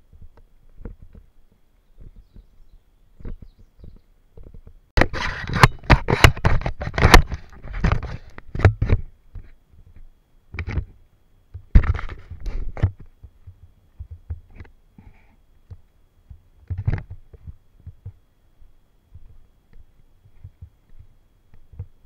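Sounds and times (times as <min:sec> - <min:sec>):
camera handling rubbing and knocking: 0:03.2 - 0:11.0, 0:11.6 - 0:14.8, 0:16.6 - 0:18.2.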